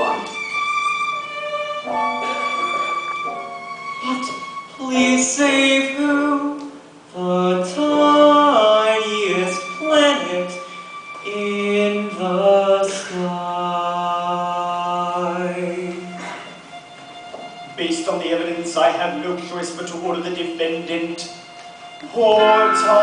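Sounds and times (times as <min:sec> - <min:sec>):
person singing on stage: 0:22.1 - 0:23.0.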